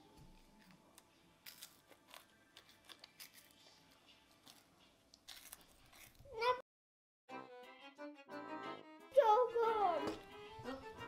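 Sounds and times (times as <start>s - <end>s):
child chewing crisp snacks: 0.4s - 6.3s.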